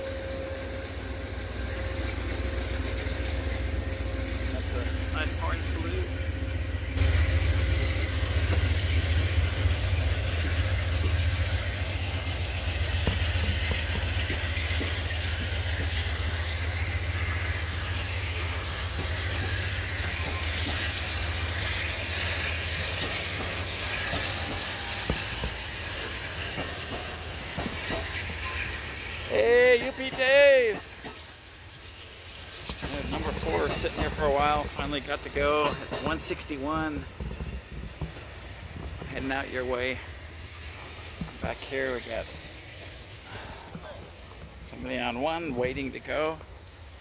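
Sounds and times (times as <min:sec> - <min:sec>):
train cars rumbling past: 0:00.0 - 0:47.0.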